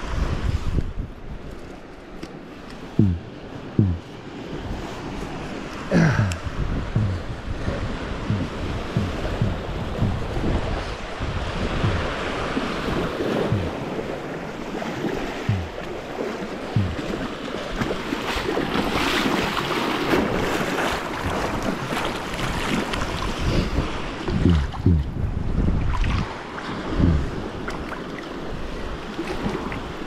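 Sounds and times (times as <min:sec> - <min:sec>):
wind on microphone: 0:00.0 - 0:01.7, 0:02.8 - 0:16.0, 0:16.7 - 0:19.3, 0:20.1 - 0:27.9
surf washing at shoreline: 0:00.0 - 0:30.0
splashing steps in water: 0:11.8 - 0:14.1, 0:14.8 - 0:23.3.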